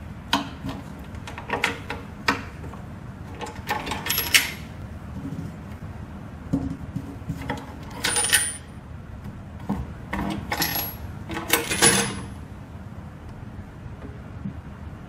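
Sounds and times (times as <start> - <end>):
metal clamps clinking and rattling: 3.4 - 4.7, 8.0 - 8.7, 10.5 - 12.3.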